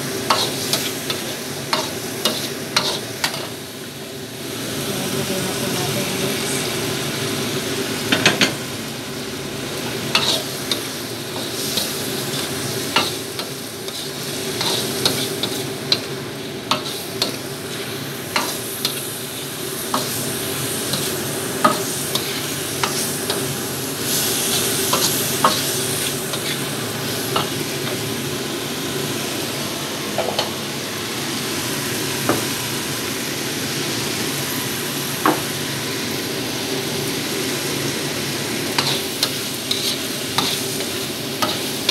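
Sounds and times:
food sizzling in hot oil: 0.0 - 41.9
spatula scraping and clacking on wok: 0.2 - 3.6, 9.9 - 20.2, 20.8 - 23.5, 24.1 - 26.7, 38.8 - 41.9.

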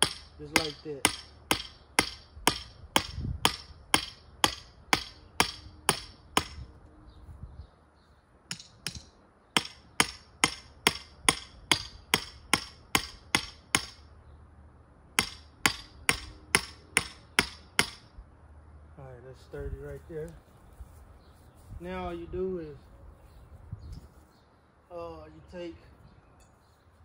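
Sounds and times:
hammer striking metal stake: 0.0 - 6.7, 8.5 - 14.0, 15.2 - 18.1.

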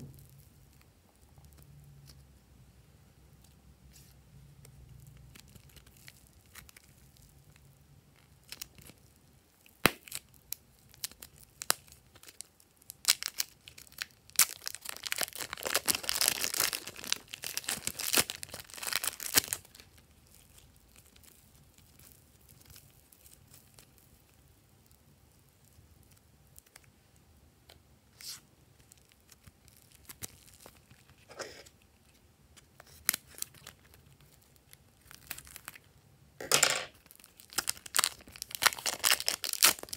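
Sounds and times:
plastic packaging crinkling and tearing: 5.0 - 7.6, 8.2 - 26.9, 28.2 - 35.9, 36.9 - 39.9.

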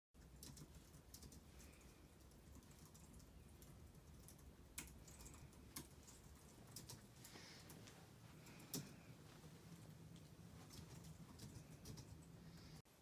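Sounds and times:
faint keyboard typing: 0.2 - 12.8.

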